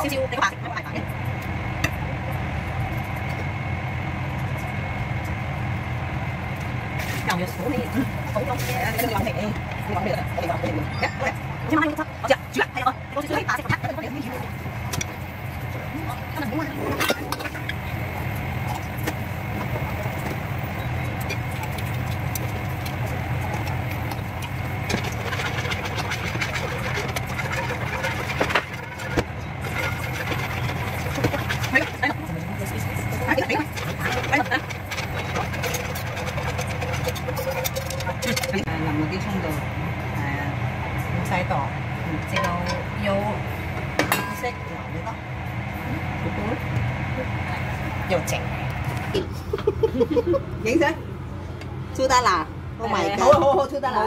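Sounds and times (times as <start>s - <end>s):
low machine hum: 0.0s - 54.0s
sauce bubbling in a pan: 17.5s - 38.0s.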